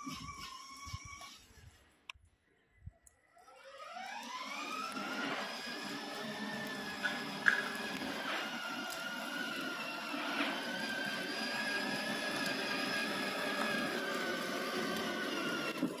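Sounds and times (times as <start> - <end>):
electric motor whining: 3.4 - 16.0
plastic wheels rattling on paving: 4.3 - 16.0.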